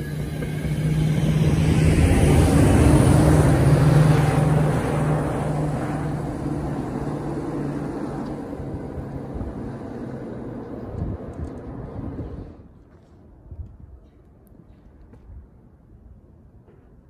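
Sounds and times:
diesel locomotive engine humming: 0.0s - 12.7s
train wheels rumbling on rails: 0.0s - 14.0s.

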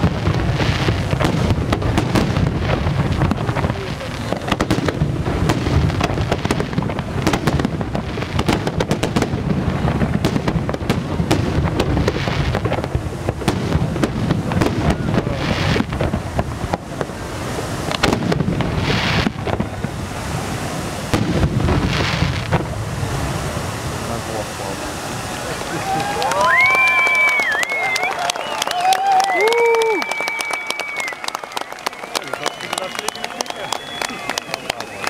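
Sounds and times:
fireworks bursting and crackling: 0.0s - 35.0s
fireworks hissing: 0.0s - 35.0s.

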